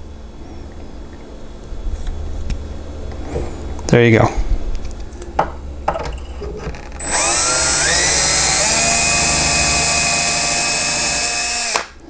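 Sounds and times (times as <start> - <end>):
cordless drill drilling into wood: 7.0 - 12.0.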